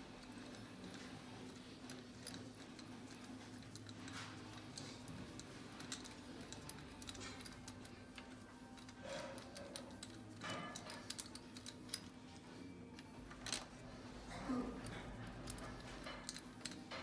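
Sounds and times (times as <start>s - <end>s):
small metal clinks: 0.0s - 17.0s
ratchet wrench clicking: 1.9s - 12.1s.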